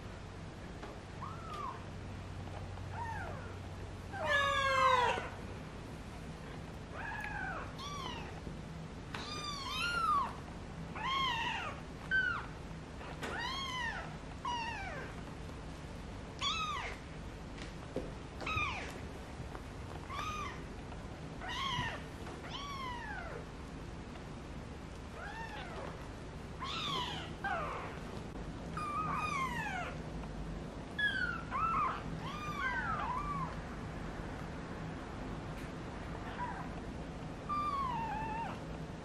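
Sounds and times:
kittens mewing: 0:26.6 - 0:28.0.

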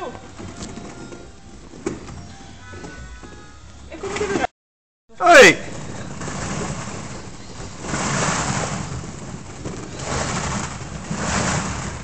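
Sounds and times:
plastic balls rustling: 0:05.6 - 0:12.0.

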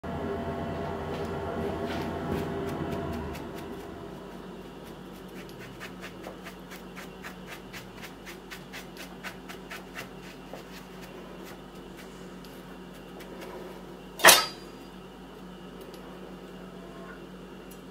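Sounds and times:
brush bristles scratching: 0:01.9 - 0:13.9.

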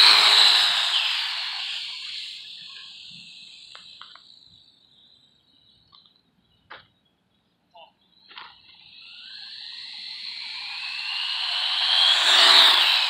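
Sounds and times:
toy car motor whine: 0:00.0 - 0:05.2, 0:08.1 - 0:13.0.

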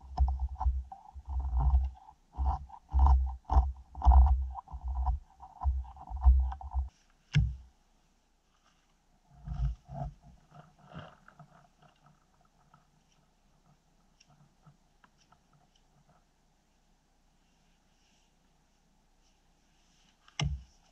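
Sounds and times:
axe knocking in wood: 0:20.4 - 0:20.7.

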